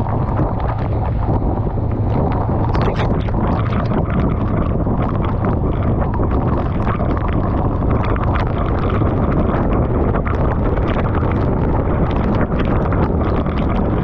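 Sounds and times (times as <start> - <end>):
raindrops clicking on microphone: 0.0 - 14.0
wind noise on microphone: 0.0 - 14.0.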